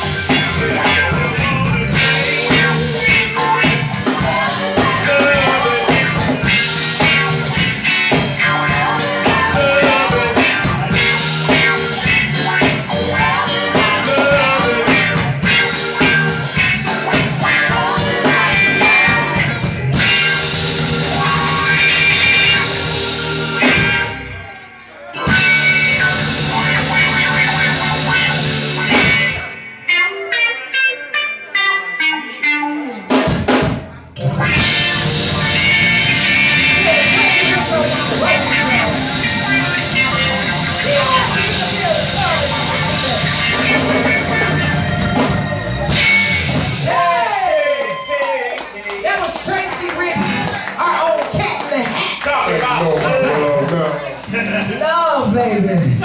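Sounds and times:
drum kit: 0.0 - 24.5, 25.2 - 29.8, 33.1 - 53.6
electric guitar: 0.0 - 56.0
soul band playing: 0.0 - 56.0.

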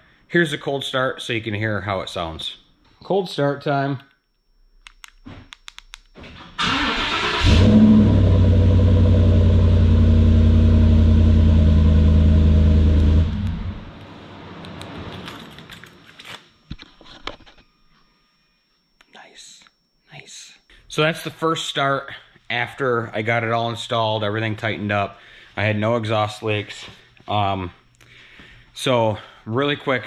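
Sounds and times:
engine running loud: 7.4 - 14.4.

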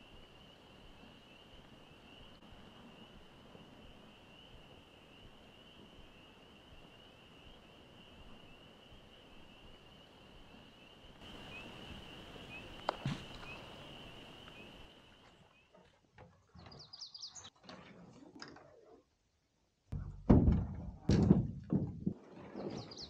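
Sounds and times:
bird chirps: 10.8 - 15.8, 16.6 - 17.5, 22.6 - 23.0
canoe knocks and scrapes: 20.0 - 23.0.

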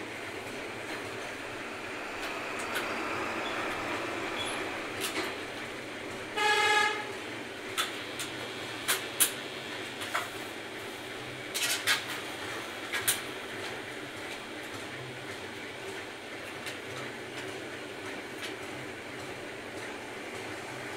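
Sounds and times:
steady background noise: 0.0 - 20.9
vehicle horn toot: 6.4 - 7.1.

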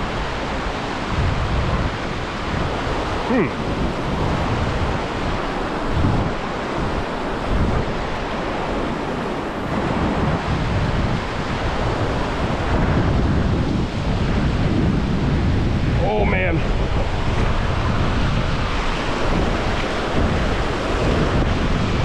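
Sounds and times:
river rushing over rocks: 0.0 - 22.0
wind gusting on microphone: 0.0 - 22.0.

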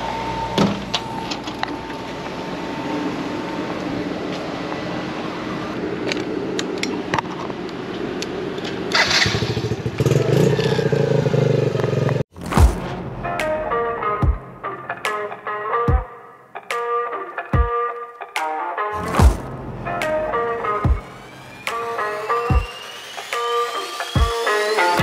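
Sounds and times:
small engine starting and running: 8.9 - 12.2, 21.1 - 25.0.

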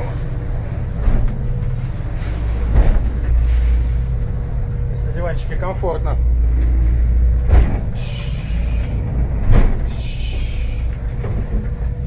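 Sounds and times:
boat engine droning: 0.0 - 12.0
dull thumps: 7.4 - 8.0.

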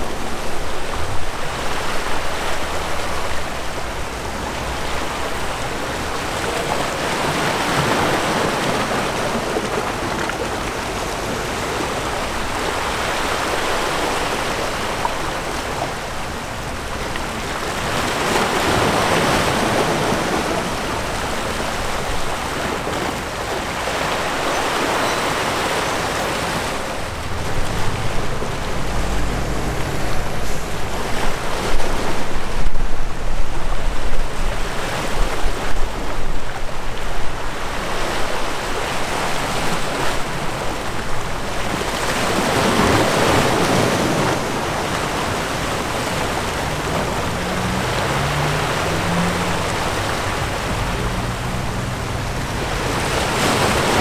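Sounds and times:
waves washing in: 0.0 - 54.0.

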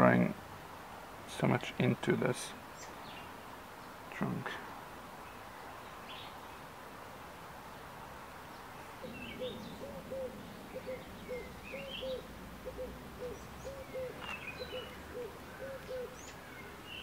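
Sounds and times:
small birds chirping: 0.0 - 17.0
bird repeating low notes: 8.9 - 17.0.

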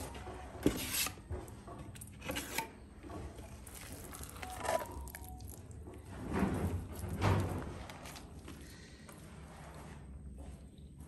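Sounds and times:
trowel scooping paste from bucket: 0.6 - 1.3.

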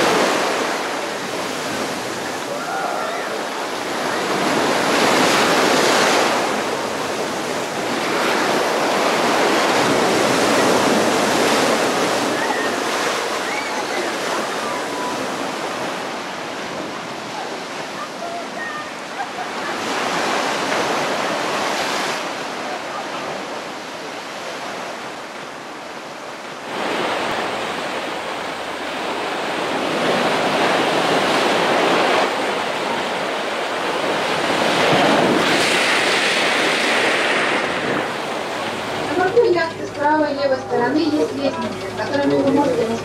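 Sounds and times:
surf breaking over rocks: 0.0 - 43.0.

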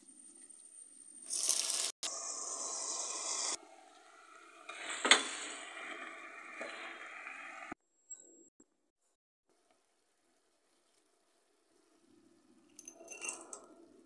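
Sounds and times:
food sizzling in a pot: 1.1 - 7.8.

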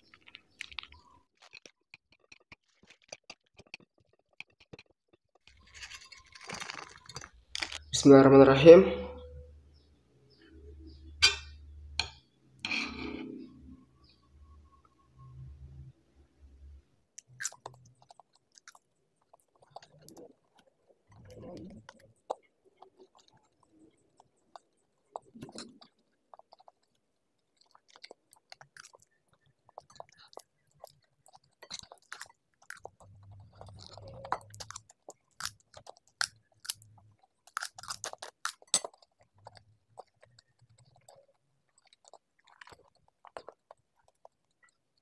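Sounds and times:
chewing and slurping noodles: 0.0 - 7.8, 17.2 - 45.0
sharp wet clicks: 17.2 - 45.0.

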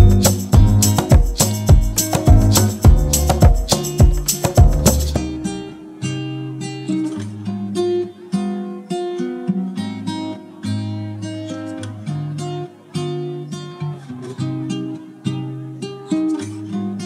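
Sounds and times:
acoustic guitar melody: 0.0 - 17.0.

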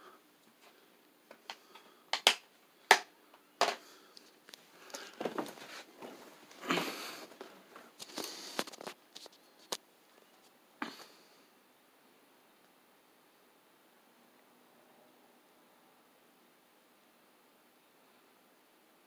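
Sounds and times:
phone rustling and scuffing: 4.5 - 9.8.

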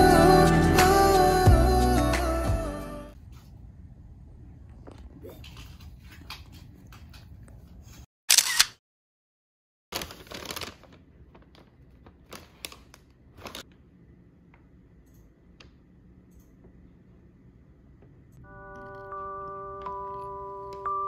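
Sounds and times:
camera shutter sound: 8.3 - 8.8.

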